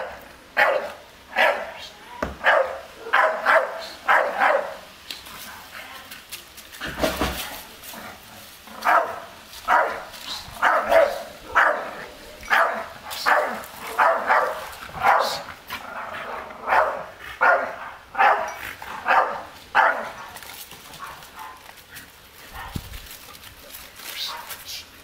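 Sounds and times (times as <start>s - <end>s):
dog barking: 0.6s - 1.7s, 2.4s - 4.8s, 8.8s - 15.4s, 16.6s - 20.2s.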